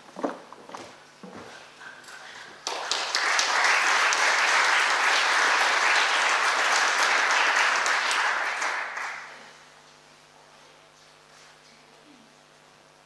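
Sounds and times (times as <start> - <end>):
audience applauding: 2.6 - 9.5.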